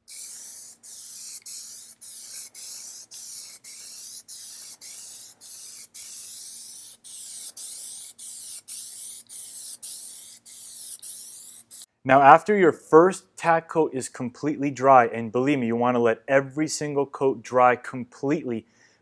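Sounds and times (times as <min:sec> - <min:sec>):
aerosol can spraying bursts: 0:00.0 - 0:11.9.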